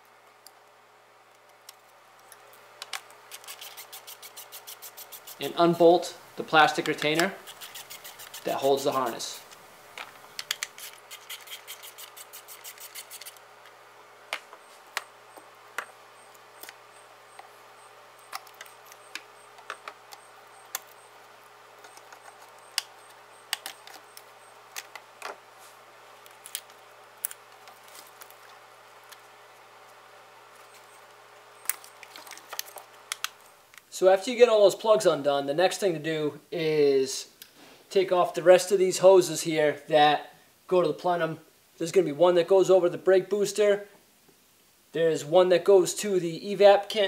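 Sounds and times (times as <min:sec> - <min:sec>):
plastic connectors clicking: 0:09.5 - 0:11.9.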